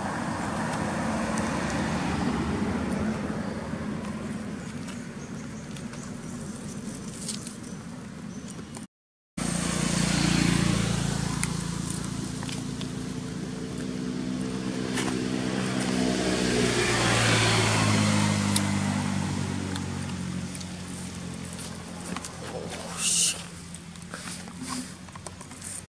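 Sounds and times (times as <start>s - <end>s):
passing traffic: 0.0s - 25.9s
vehicle engine running: 9.4s - 25.9s.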